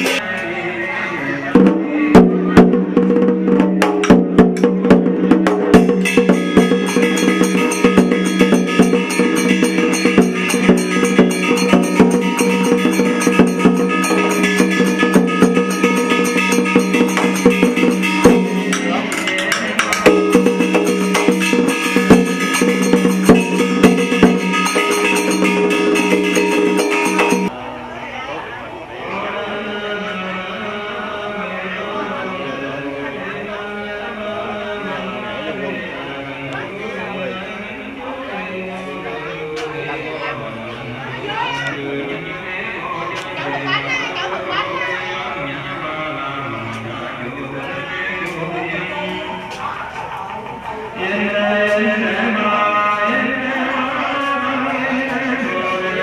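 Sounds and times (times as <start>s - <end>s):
drum strikes: 0.0s - 0.2s, 1.6s - 27.5s
wood-block clacks: 5.4s - 27.5s
sustained pitched melody: 5.8s - 27.5s.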